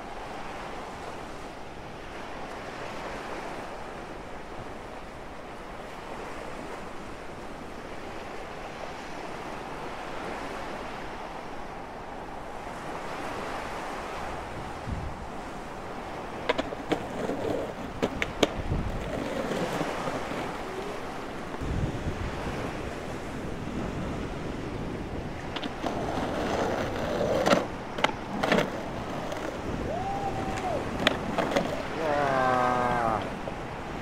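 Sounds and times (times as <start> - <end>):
sea waves: 0.0 - 34.0
wind: 0.0 - 34.0
skateboard knocks on concrete: 16.4 - 20.2.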